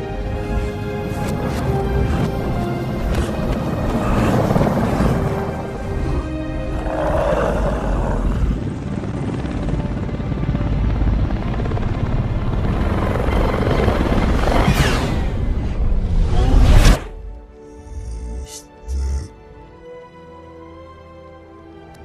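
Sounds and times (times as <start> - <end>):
helicopter rotor chop: 0.0 - 15.8
film score music: 0.0 - 22.0.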